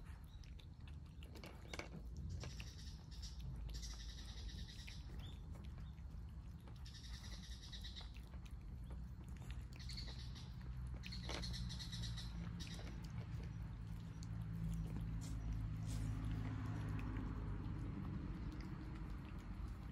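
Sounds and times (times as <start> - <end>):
cats chewing wet food: 0.0 - 19.9
high chirping calls: 9.8 - 12.9.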